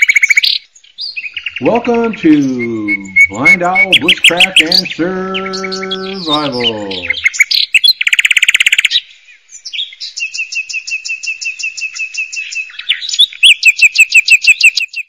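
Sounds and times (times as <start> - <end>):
bird high chirps: 0.0 - 15.0
bird buzzy trill: 1.5 - 7.4.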